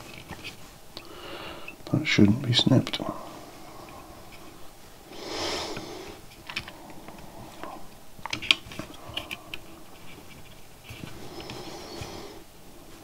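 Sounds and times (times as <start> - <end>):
soft rush of noise: 0.0 - 13.0
small clicks and taps: 6.3 - 7.3.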